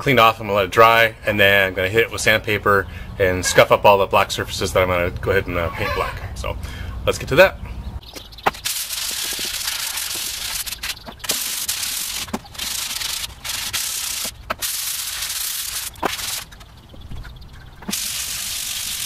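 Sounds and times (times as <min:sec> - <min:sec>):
sandpaper rubbing on metal: 0:08.6 - 0:16.5, 0:17.9 - 0:19.0.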